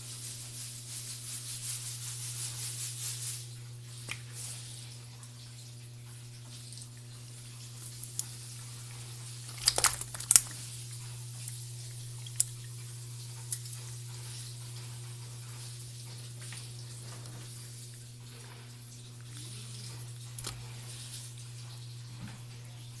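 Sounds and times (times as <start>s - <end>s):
fish moved in a container: 9.4s - 10.8s
sharp clicks and rustles: 9.5s - 10.6s.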